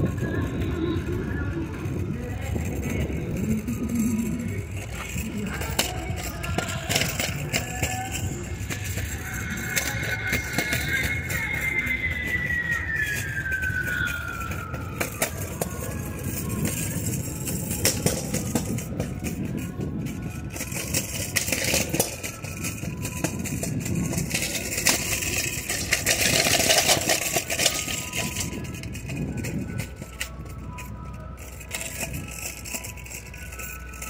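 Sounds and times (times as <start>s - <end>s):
high tone gliding down: 0.0s - 20.2s
street traffic noise: 0.0s - 34.0s.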